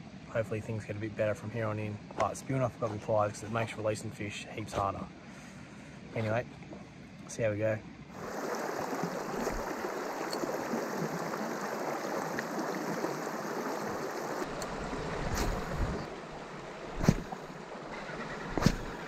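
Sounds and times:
creek water over rocks: 0:01.3 - 0:19.0
sharp thumps: 0:17.0 - 0:17.4, 0:18.5 - 0:19.0.

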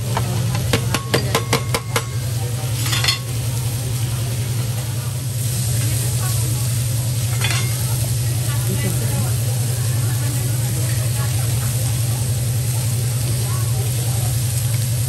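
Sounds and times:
food sizzling on a griddle: 0:00.0 - 0:15.0
metal spatula scraping and tapping: 0:07.3 - 0:07.8.

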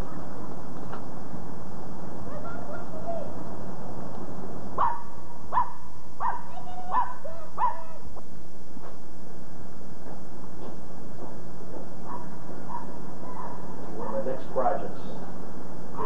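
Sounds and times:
tape hiss: 0:00.0 - 0:16.0
dog barking: 0:04.8 - 0:08.0, 0:12.0 - 0:14.4.

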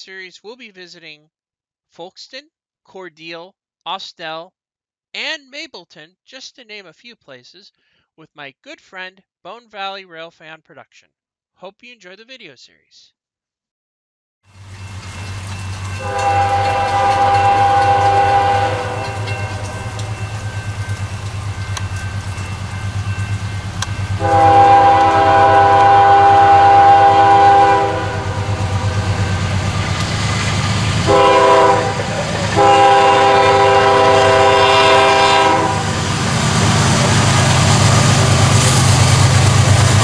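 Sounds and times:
train engines rumbling: 0:14.6 - 0:40.0
locomotive air horn: 0:15.9 - 0:20.7, 0:24.1 - 0:29.6, 0:31.0 - 0:36.0.

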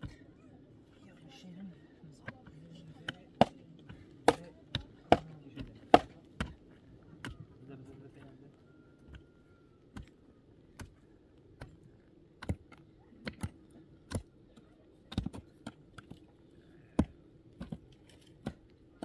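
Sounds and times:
digging tool striking ground: 0:04.2 - 0:06.6, 0:12.4 - 0:14.3, 0:15.1 - 0:16.2, 0:17.0 - 0:18.6.

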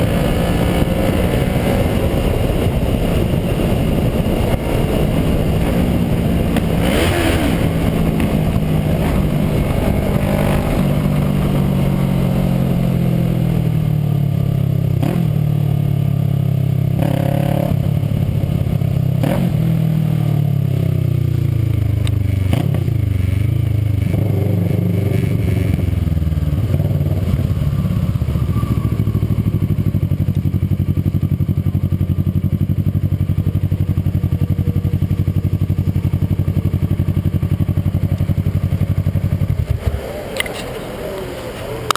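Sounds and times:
motorcycle engine idling: 0:25.7 - 0:41.9.

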